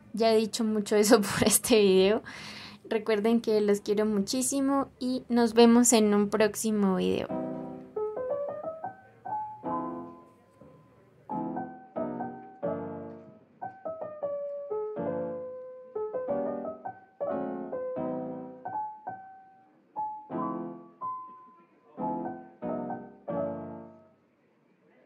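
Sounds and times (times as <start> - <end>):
gentle piano melody: 7.2 - 24.3.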